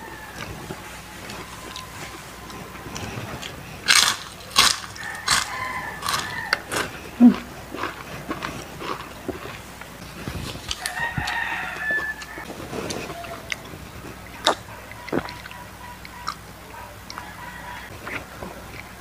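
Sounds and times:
rooster crowing: 0.0 - 7.1, 10.7 - 14.0, 15.5 - 18.8
crunching fried chicken skin: 0.0 - 16.4.

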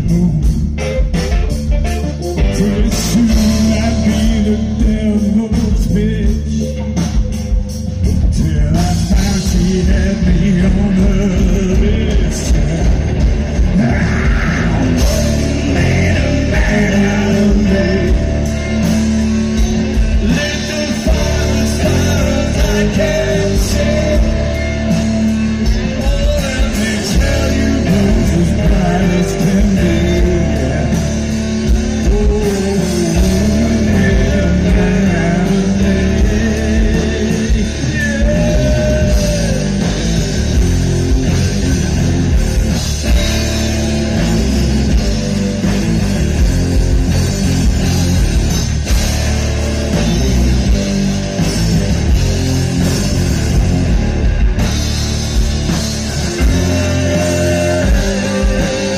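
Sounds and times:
man singing: 0.0 - 1.3, 2.3 - 7.3, 8.0 - 40.6, 56.2 - 58.9
live rock band playing: 0.0 - 58.9.

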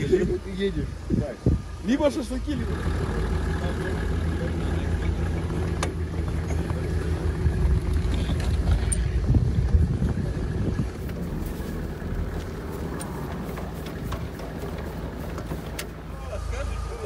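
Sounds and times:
vehicle engine running: 0.0 - 17.0
light clicks and knocks: 11.0 - 16.1.

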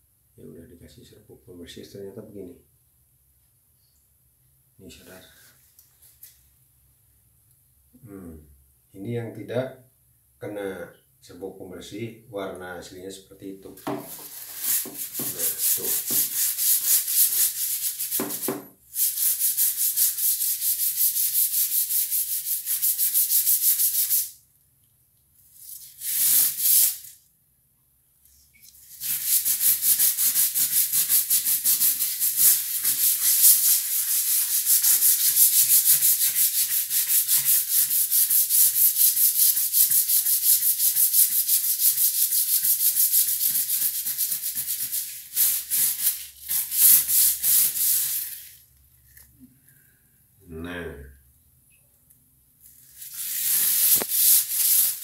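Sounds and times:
scrub brush scrubbing tiles: 13.8 - 24.3, 25.6 - 27.1, 28.6 - 49.2, 52.7 - 55.0.

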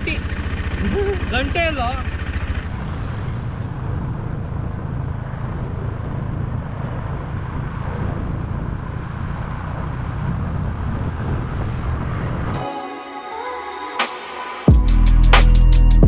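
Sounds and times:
motorcycle engine rumble: 0.0 - 12.5
highway traffic: 0.0 - 12.6
wind noise: 2.7 - 12.6.

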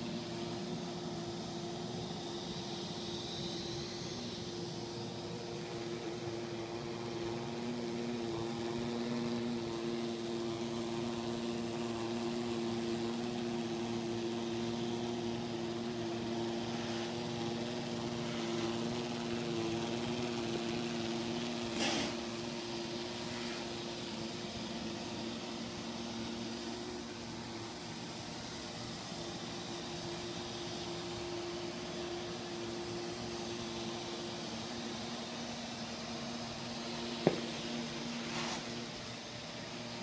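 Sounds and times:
robot vacuum motor hum: 0.0 - 40.0.

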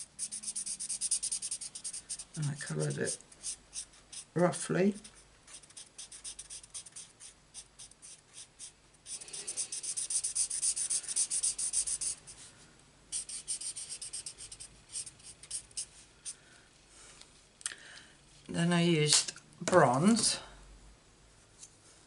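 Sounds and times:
marker scribbling on card: 0.0 - 12.4, 13.1 - 16.4.

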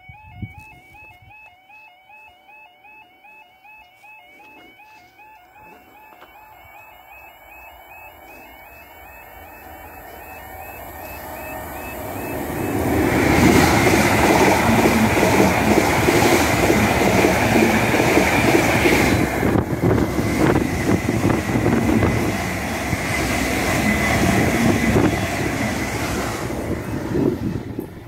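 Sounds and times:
faint high whine: 4.4 - 13.6
train wheels rushing on rail: 5.6 - 28.0.

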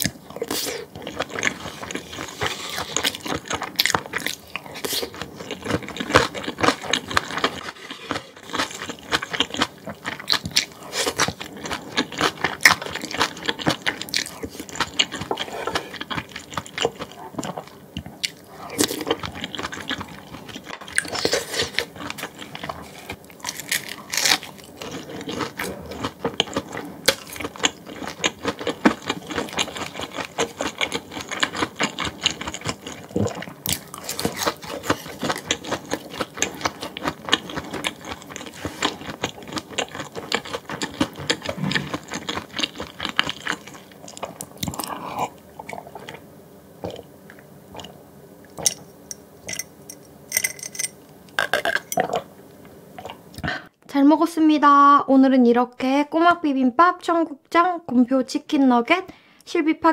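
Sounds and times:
chewing and crunching food: 0.0 - 46.2.

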